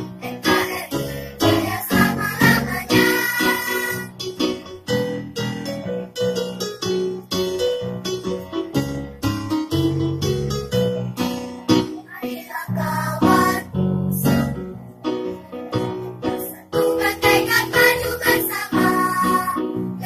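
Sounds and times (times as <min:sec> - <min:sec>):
children's choir singing: 0:00.0 - 0:04.1, 0:12.1 - 0:13.7, 0:16.4 - 0:19.7
electronic keyboard: 0:00.0 - 0:20.0.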